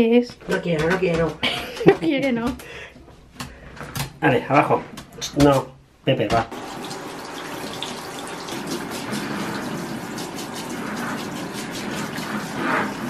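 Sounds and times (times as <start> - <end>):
shower water splashing: 6.5 - 13.0.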